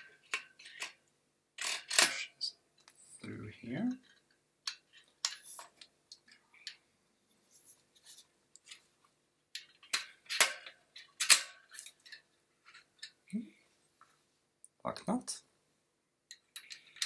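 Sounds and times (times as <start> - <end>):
small metal clicks and scrapes: 0.0 - 2.2, 4.0 - 6.8, 9.5 - 13.3, 16.3 - 17.0.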